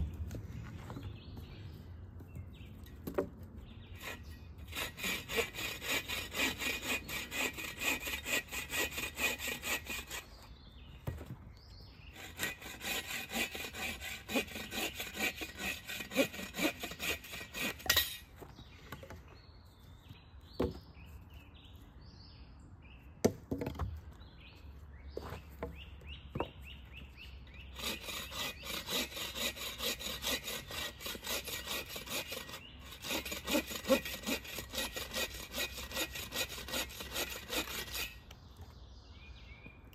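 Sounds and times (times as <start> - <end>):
bow saw cutting branch: 4.0 - 10.4, 12.1 - 18.3, 27.7 - 38.3.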